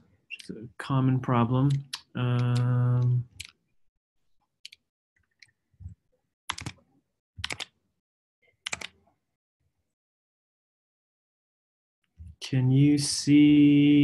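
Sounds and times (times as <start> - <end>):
mouse and keyboard clicks: 4.6 - 6.8, 7.4 - 7.7.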